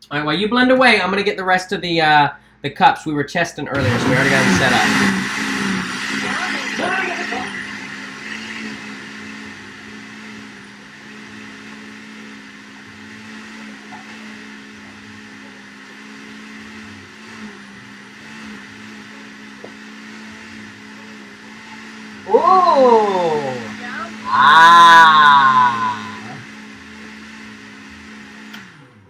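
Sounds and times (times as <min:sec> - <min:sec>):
blender motor running: 0:03.7 - 0:29.0.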